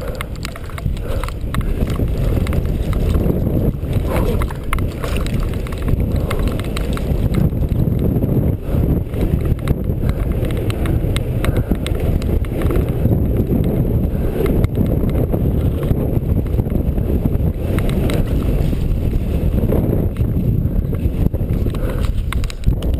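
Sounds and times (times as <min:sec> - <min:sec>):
bike rattling clicks: 0:00.0 - 0:22.9
tyres rumbling: 0:00.0 - 0:22.9
wind buffeting microphone: 0:00.0 - 0:22.9.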